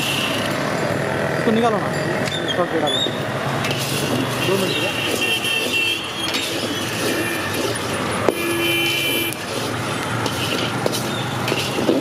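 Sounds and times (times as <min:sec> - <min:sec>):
street traffic noise: 0:00.0 - 0:12.0
vehicle horn: 0:04.4 - 0:06.2, 0:08.3 - 0:09.4.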